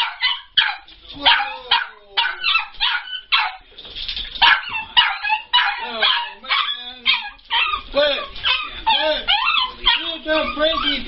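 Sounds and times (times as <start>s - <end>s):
dog barking and yipping: 0.0s - 3.7s, 4.4s - 11.0s
dog whining: 4.5s - 11.0s.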